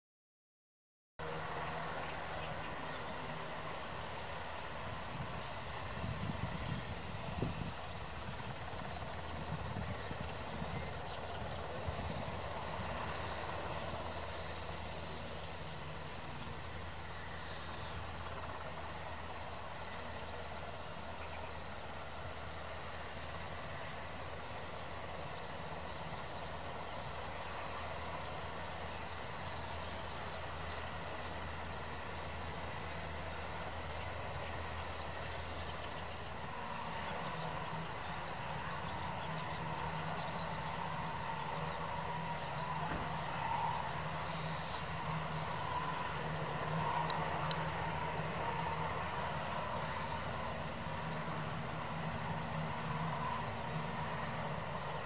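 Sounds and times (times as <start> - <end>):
helicopter engine and rotors humming: 1.2 - 55.0
sharp clicks: 46.9 - 48.8.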